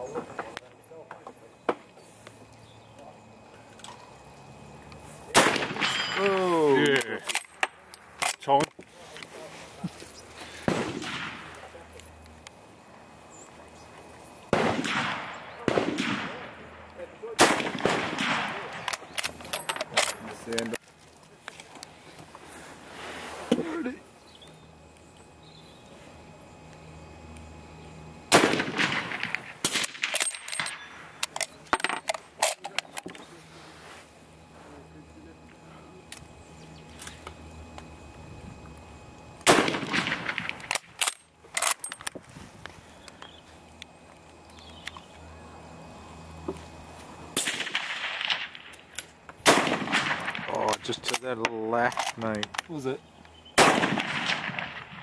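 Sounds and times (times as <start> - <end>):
rifle shots echoing: 5.3 - 6.2, 10.6 - 11.7, 14.5 - 19.1, 28.3 - 30.9, 39.4 - 40.8, 47.4 - 48.7, 49.4 - 50.7, 53.6 - 55.0.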